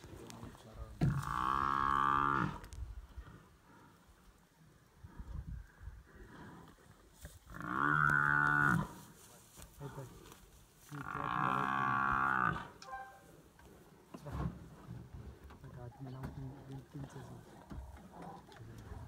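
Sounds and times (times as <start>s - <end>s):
buffalo bellowing in distress: 1.1s - 2.7s, 10.9s - 13.2s.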